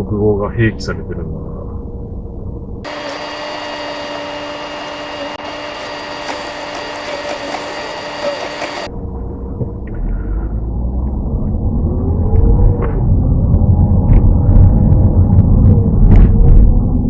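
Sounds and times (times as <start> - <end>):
high whirring hum: 0.0 - 17.0
car driving rumble inside cabin: 7.6 - 17.0.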